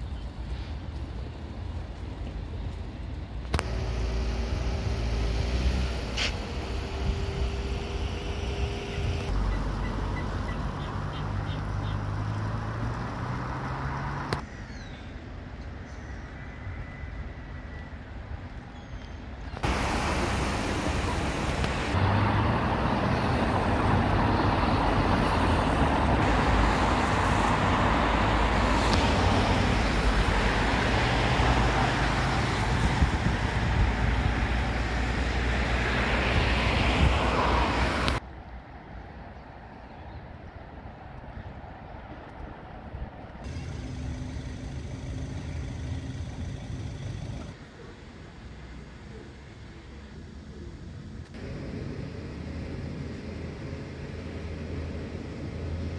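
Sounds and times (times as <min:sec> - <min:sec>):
road traffic passing: 0:00.0 - 0:55.9
wind on microphone: 0:32.0 - 0:35.3.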